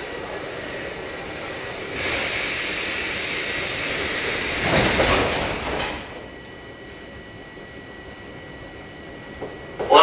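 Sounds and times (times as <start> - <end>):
loud pneumatic hiss: 1.5 - 4.4
sliding doors shutting with thud: 4.5 - 6.2.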